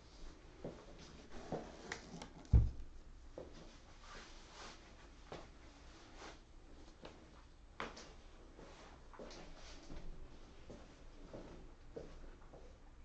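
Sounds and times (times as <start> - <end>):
low thump: 2.5 - 2.8.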